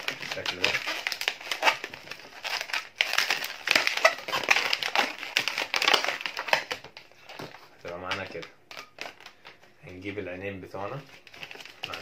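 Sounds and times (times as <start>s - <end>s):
balloon squeaking and rubbing: 0.0s - 6.9s.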